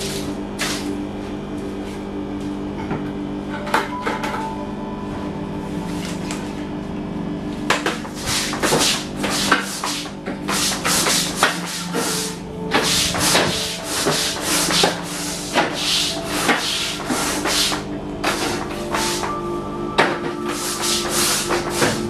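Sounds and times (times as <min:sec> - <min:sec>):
vacuum hum: 0:00.0 - 0:22.0
brush scrubbing wet floor: 0:07.8 - 0:19.3, 0:20.3 - 0:22.0.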